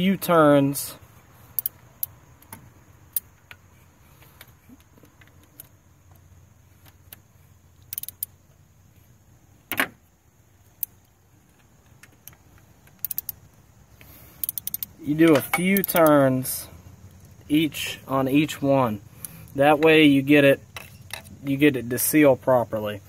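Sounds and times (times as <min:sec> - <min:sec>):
metal wrench clicking on bolts: 0:01.5 - 0:02.2, 0:07.8 - 0:08.4, 0:12.2 - 0:13.5, 0:14.3 - 0:16.2.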